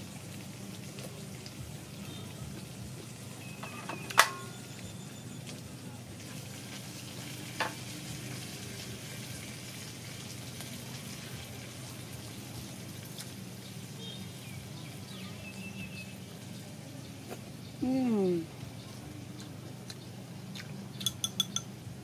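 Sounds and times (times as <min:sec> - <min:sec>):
low outdoor hum: 0:00.0 - 0:22.0
faint bird chirps: 0:03.4 - 0:05.6, 0:13.6 - 0:19.0
chopsticks clicking in ceramic bowl: 0:20.6 - 0:21.7.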